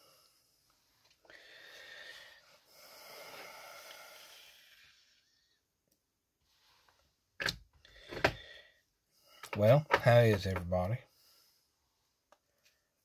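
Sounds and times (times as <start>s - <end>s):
man breathing while smoking pipe: 0.0s - 5.6s, 7.8s - 9.6s, 11.1s - 11.8s.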